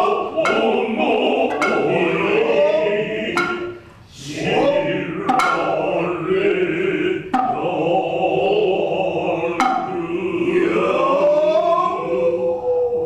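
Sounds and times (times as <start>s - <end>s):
low chanting voices: 0.0s - 13.0s
hand drum strikes: 0.4s - 0.8s, 1.4s - 2.2s, 3.4s - 3.9s, 5.2s - 5.8s, 7.3s - 7.7s, 9.6s - 10.0s.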